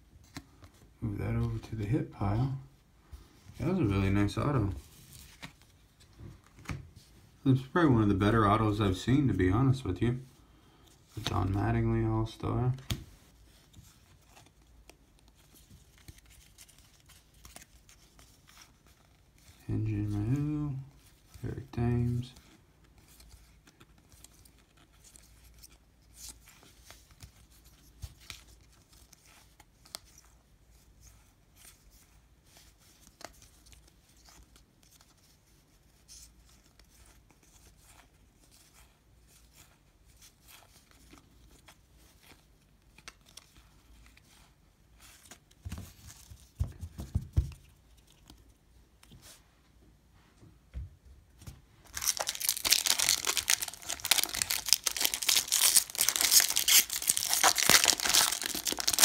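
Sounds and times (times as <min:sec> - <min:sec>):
cards ticking and rustling: 0:12.2 - 0:31.0, 0:51.8 - 0:59.0.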